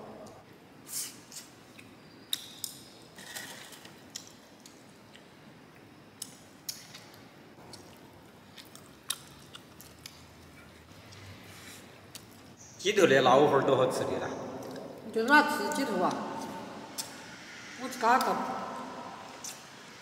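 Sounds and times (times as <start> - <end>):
people chewing chicken: 7.6 - 12.5.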